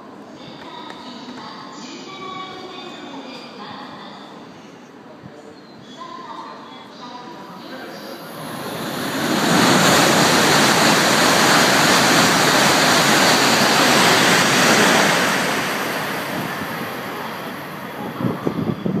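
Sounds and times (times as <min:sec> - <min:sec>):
high-speed train passing: 0:07.5 - 0:19.0
wind gusts on microphone: 0:08.3 - 0:19.0.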